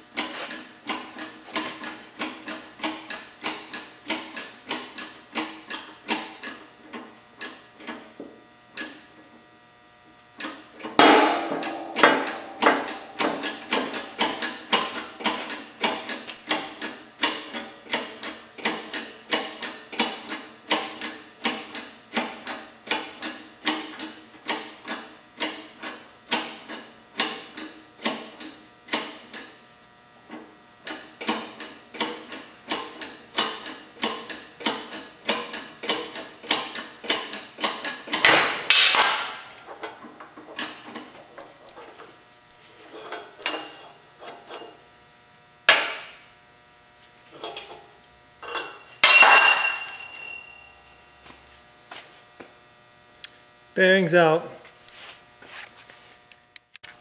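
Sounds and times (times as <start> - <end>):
rhythmic metal clacks of press: 10.4 - 29.5, 30.8 - 38.6
loud ringing metal bang: 11.0 - 14.1.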